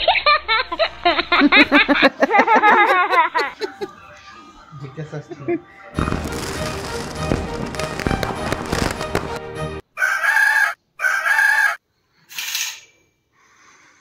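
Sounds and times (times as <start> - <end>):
loud music with sharp cracks: 6.0 - 9.8
rooster crowing: 10.0 - 11.8.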